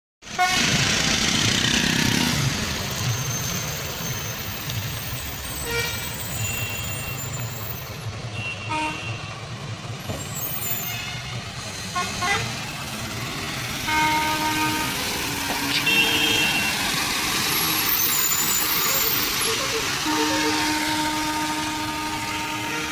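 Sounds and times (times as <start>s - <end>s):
lorry diesel engine at low revs: 0.2s - 22.9s
tyres hissing on wet road: 0.2s - 22.9s.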